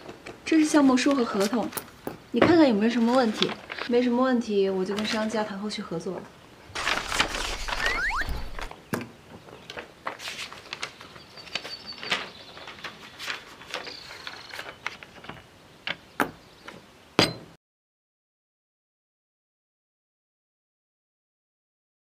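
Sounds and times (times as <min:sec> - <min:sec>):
paper handling: 0:02.9 - 0:04.0, 0:06.8 - 0:08.7, 0:09.7 - 0:15.4.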